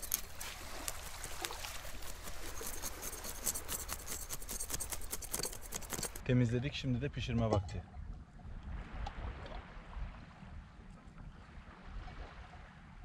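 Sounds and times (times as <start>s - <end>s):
knife scraping fish scales: 0.0s - 6.2s
small waves lapping: 0.0s - 6.2s.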